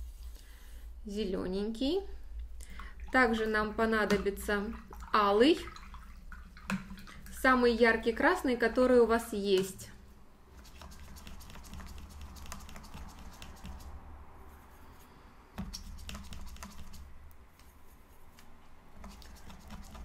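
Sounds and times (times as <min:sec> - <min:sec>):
paintbrush scrubbing paint: 0:10.5 - 0:20.0.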